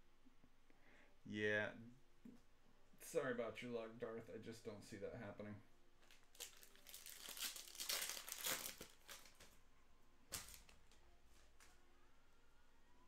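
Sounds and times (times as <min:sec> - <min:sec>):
card pack wrapper crinkling: 0:06.0 - 0:09.6, 0:10.3 - 0:11.0
sharp wrapper crackle: 0:06.0 - 0:09.6, 0:10.3 - 0:11.0.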